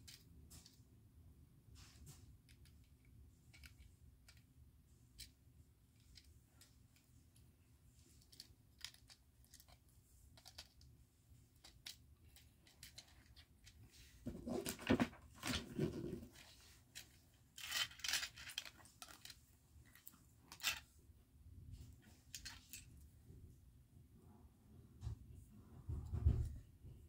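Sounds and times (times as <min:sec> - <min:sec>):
rustling: 0:05.9 - 0:20.9.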